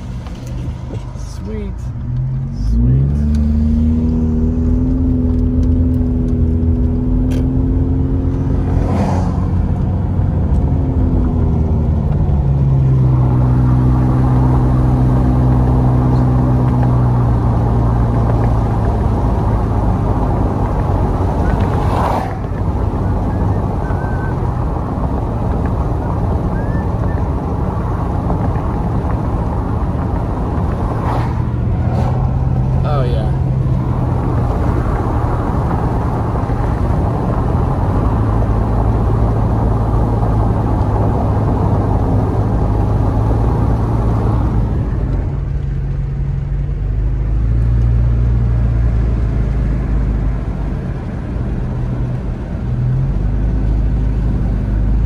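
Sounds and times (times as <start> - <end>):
car engine accelerating: 0.0 - 55.0
tyre and road noise: 0.0 - 55.0.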